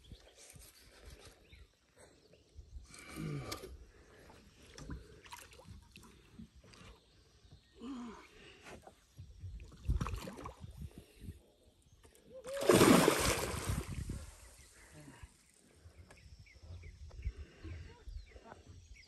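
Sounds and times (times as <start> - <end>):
fish thrashing and splashing: 12.5 - 14.0.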